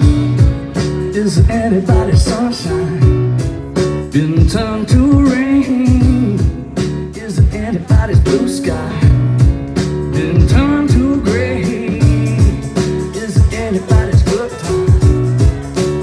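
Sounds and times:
keyboard: 0:00.0 - 0:16.0
person singing: 0:00.0 - 0:16.0
drum beat: 0:04.2 - 0:16.0.

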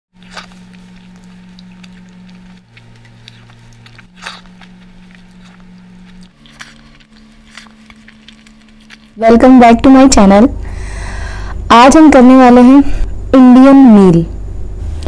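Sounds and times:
crisp bites and chewing: 0:00.2 - 0:09.2
wet squishing of food by hand: 0:00.2 - 0:10.2
low steady hum: 0:00.2 - 0:15.0.

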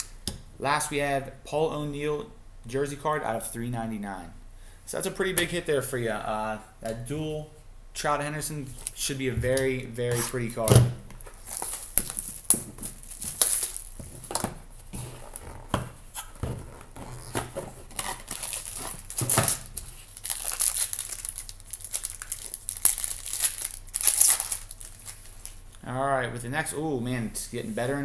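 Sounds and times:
plastic wrap crinkling and tearing: 0:11.1 - 0:25.6.

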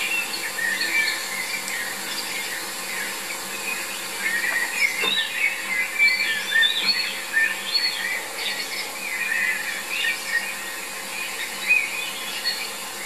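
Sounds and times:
small birds singing: 0:00.0 - 0:13.0.

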